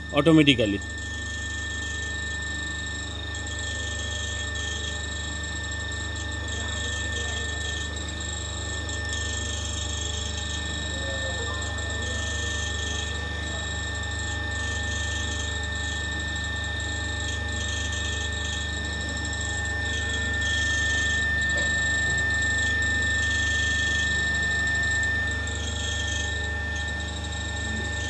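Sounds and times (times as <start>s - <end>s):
generator low hum: 0.0s - 0.9s, 19.0s - 28.0s
high-pitched whine: 0.0s - 1.0s, 18.6s - 28.0s.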